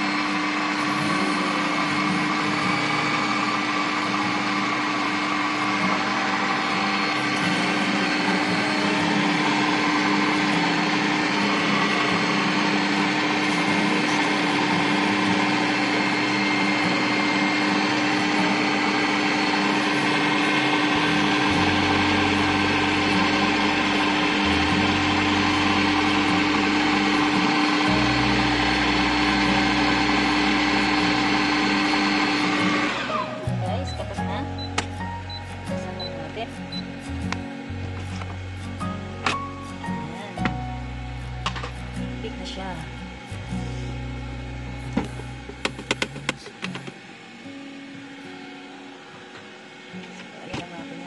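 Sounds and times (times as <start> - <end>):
stand mixer whisking: 0.0 - 33.2.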